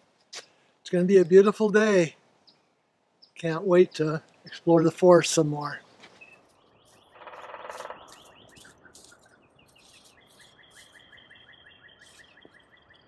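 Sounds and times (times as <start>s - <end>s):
birds chirping: 2.4s - 13.0s
bird trill: 6.2s - 13.0s.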